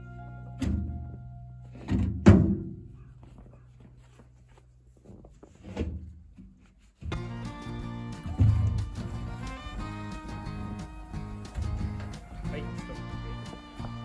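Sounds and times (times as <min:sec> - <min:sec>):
background music: 0:00.0 - 0:02.1, 0:07.1 - 0:14.0.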